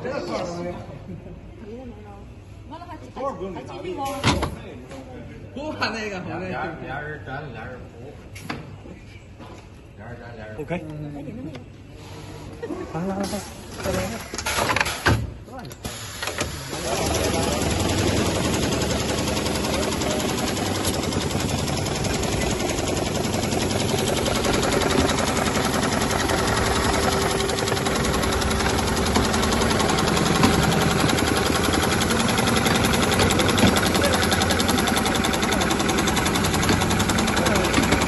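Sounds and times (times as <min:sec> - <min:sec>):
sewing machine stitching rapidly: 0:16.5 - 0:38.0.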